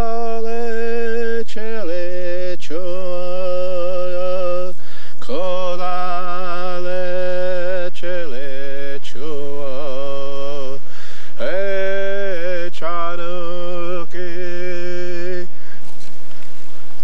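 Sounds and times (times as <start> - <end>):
man chanting: 0.0 - 15.6
man breathing: 4.7 - 5.2, 10.8 - 11.4, 15.5 - 16.9.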